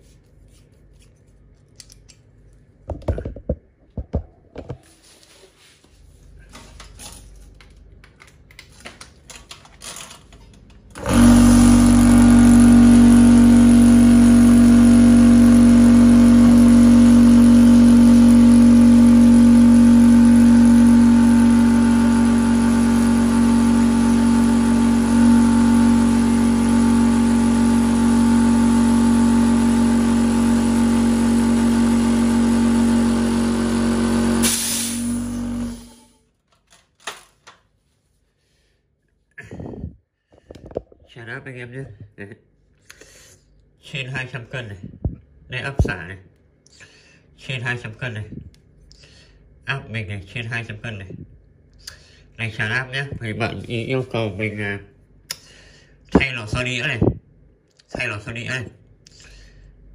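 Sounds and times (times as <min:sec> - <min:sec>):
air compressor humming: 0:10.9 - 0:36.2.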